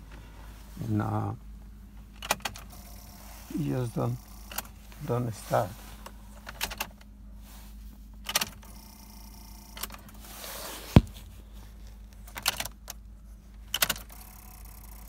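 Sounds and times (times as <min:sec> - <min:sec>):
car keys clicking and rattling: 0:02.1 - 0:03.1, 0:04.1 - 0:04.8, 0:06.4 - 0:07.2, 0:08.2 - 0:08.8, 0:11.9 - 0:15.0.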